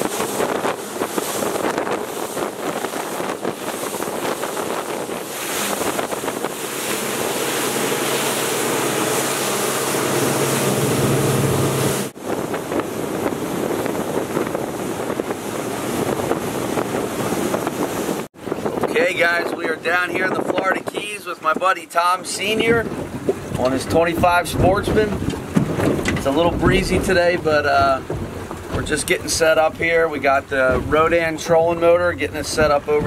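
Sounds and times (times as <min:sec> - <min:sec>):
outboard engine humming: 0:00.0 - 0:20.5, 0:22.2 - 0:33.0
wake and spray rushing: 0:00.0 - 0:21.2
wind buffeting microphone: 0:00.0 - 0:33.0.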